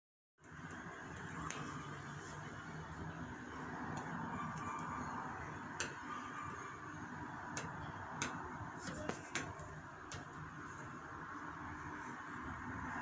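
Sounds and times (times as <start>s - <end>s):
faint clicks and ticks: 0.4s - 2.7s.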